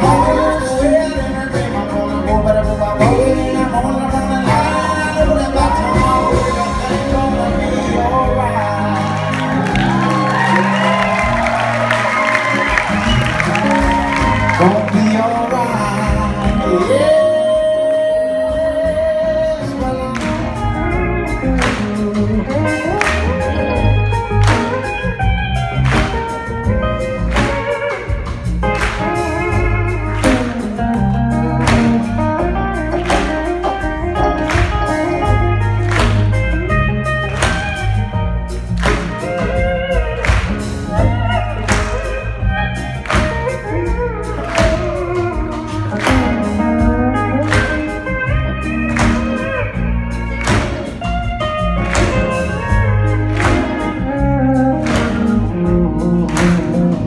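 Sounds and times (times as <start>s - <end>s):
drum beat: 0.0s - 17.0s, 19.6s - 57.0s
bass guitar: 0.0s - 57.0s
electric guitars: 0.0s - 57.0s
pedal steel guitar lead: 0.0s - 57.0s.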